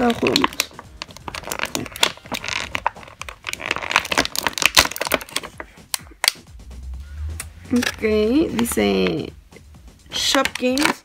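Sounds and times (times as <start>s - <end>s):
plastic packaging crinkling: 0.0s - 5.7s.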